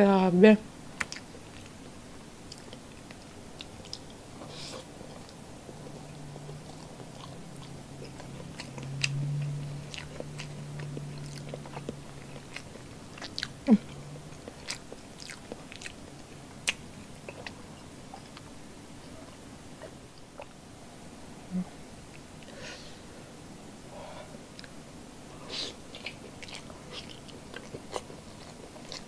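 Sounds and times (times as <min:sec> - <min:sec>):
low steady hum: 0:00.0 - 0:29.0
person chewing food: 0:01.0 - 0:01.8, 0:02.4 - 0:20.6, 0:25.6 - 0:29.0.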